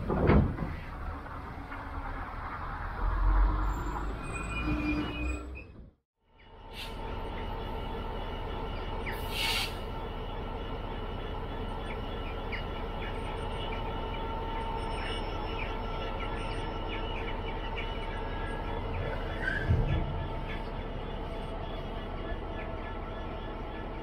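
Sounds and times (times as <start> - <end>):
diesel locomotive idling: 6.4 - 24.0
birds chirping: 7.2 - 24.0
short air hiss: 9.3 - 9.8.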